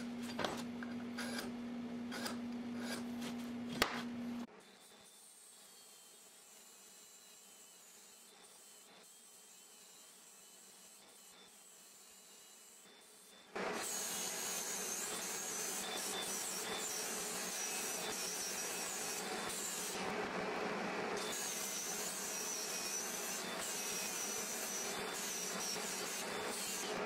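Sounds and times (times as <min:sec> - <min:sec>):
angle grinder grinding steel: 0:21.2 - 0:27.0.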